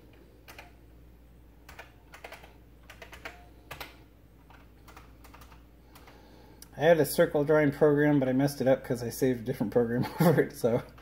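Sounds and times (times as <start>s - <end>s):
keyboard keys clicking: 0.5s - 0.7s, 1.7s - 6.2s.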